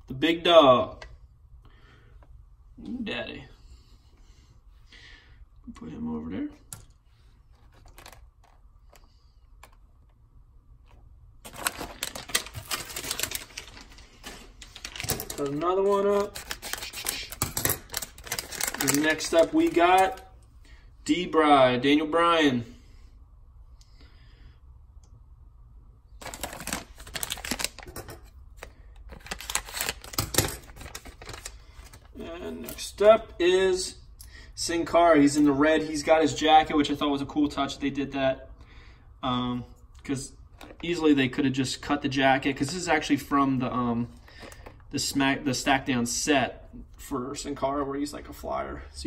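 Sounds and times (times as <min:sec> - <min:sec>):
foil wrapper crinkling: 0:11.4 - 0:20.3, 0:26.2 - 0:32.8.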